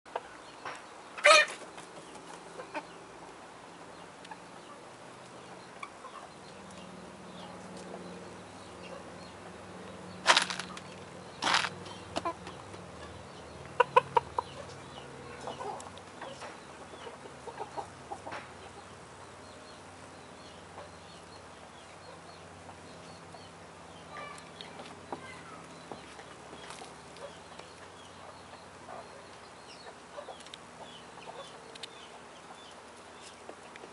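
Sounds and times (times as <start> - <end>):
chickens clucking softly: 0.1 - 3.0, 12.1 - 19.6
loud sharp sounds: 10.2 - 10.8.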